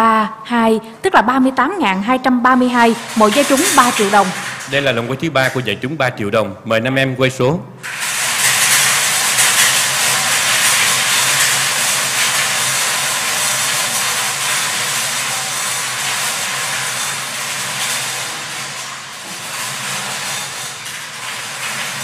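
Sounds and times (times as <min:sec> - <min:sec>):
balls rattling in spinning cages: 0:02.5 - 0:05.8, 0:07.8 - 0:22.0.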